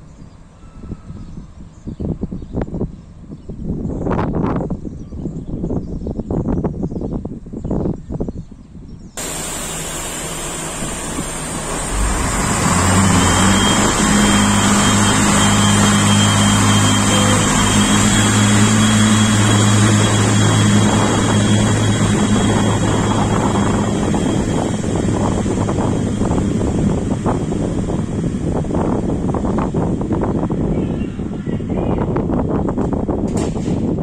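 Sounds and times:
wind buffeting microphone: 0.8s - 34.0s
faint high whine: 9.2s - 29.6s
train diesel engines droning: 9.2s - 33.0s.

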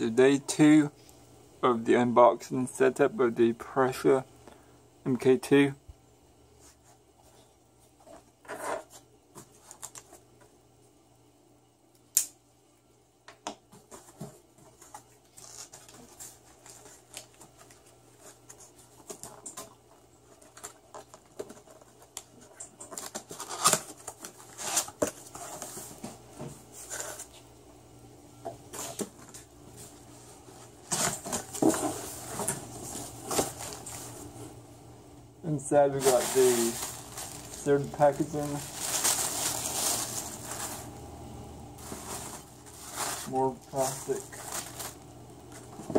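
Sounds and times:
cardboard rustling and tearing: 13.9s - 26.2s, 30.7s - 34.2s, 36.0s - 41.0s, 41.8s - 45.9s.

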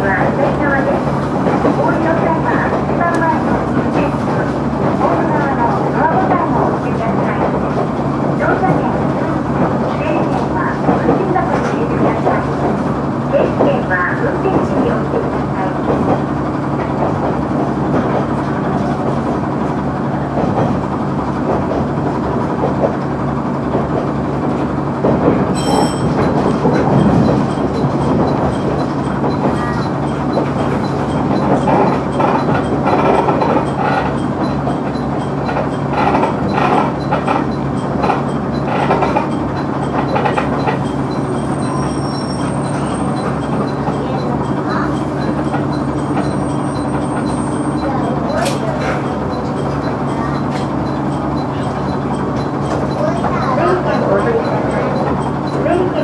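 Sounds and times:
diesel engine running: 0.0s - 56.0s
wheels rumbling on rails: 0.0s - 56.0s
wheels clicking over rail joints: 20.4s - 56.0s
brief high-pitched tone: 25.6s - 26.2s.

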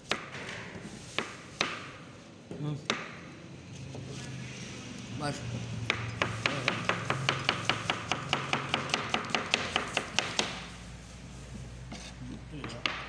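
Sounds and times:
knife chopping on plastic board: 5.9s - 10.6s.

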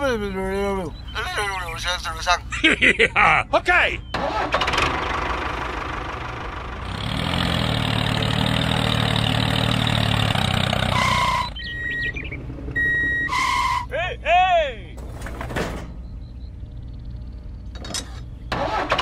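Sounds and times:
tractor engine knocking: 4.2s - 10.9s
short electronic beeps: 11.0s - 13.8s.

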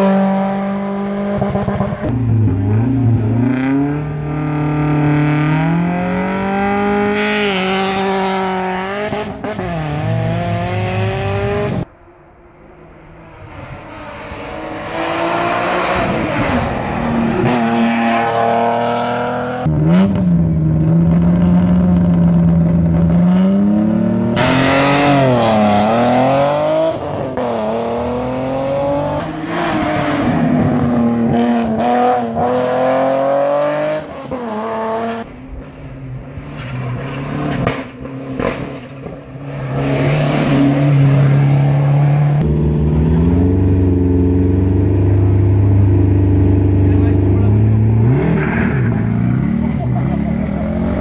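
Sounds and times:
rally car engine revving high: 0.0s - 11.9s, 13.5s - 35.4s, 36.8s - 51.0s
rally cars accelerating past: 13.3s - 20.3s.

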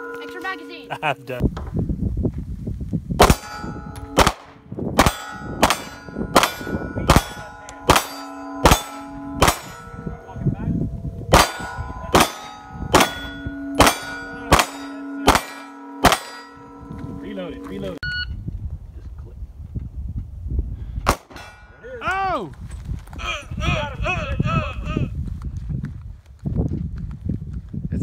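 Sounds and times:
steel targets ringing: 3.2s - 4.4s, 5.0s - 18.0s, 21.1s - 21.9s
gunshots: 3.2s - 9.8s, 11.3s - 16.5s, 21.1s - 21.5s.

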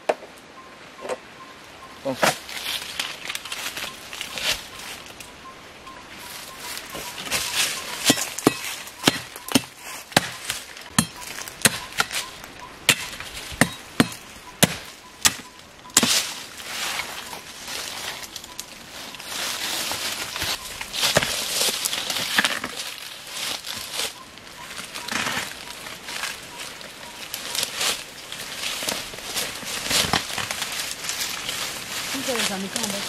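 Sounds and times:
stems dragged through undergrowth: 2.0s - 5.4s, 6.0s - 33.0s
blade chopping woody stems: 8.0s - 12.3s, 12.9s - 16.3s, 20.4s - 21.4s.

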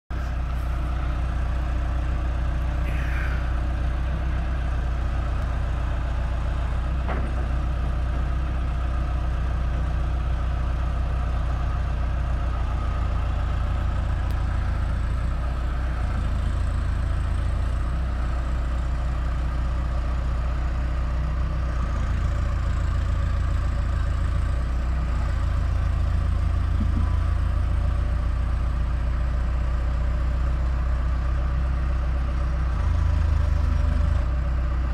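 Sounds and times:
engine idling: 0.1s - 34.9s.

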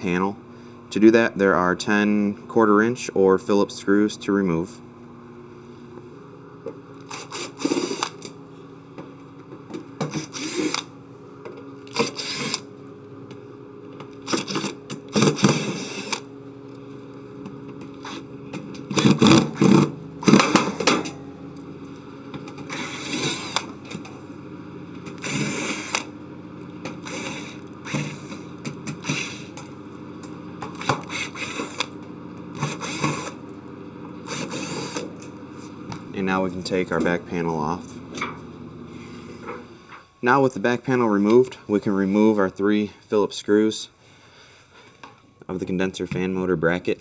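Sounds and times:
cordless screwdriver running: 7.0s - 8.4s, 10.0s - 10.9s, 11.8s - 12.7s, 14.2s - 16.3s, 18.0s - 20.8s, 22.6s - 24.0s, 25.0s - 26.1s, 26.8s - 29.8s, 30.7s - 33.5s, 34.2s - 35.3s.

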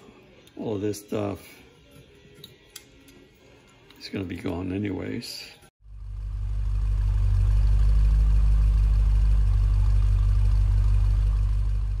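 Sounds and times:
car engine idling: 5.8s - 12.0s.

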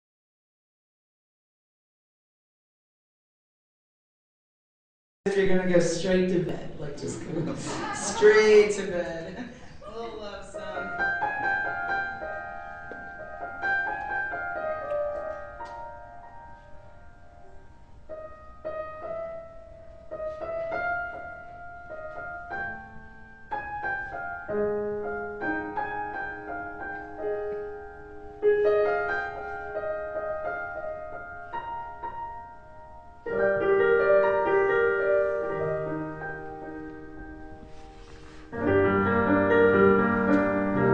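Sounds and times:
electric piano chords: 10.6s - 40.9s.

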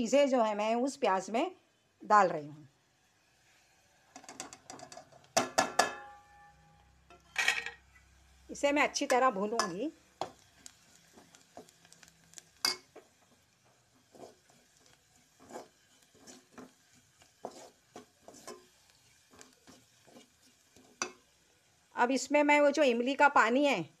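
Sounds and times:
spoon knocking on pot: 4.2s - 6.2s, 21.0s - 21.2s
spoon scraping a metal pot: 14.1s - 21.2s.

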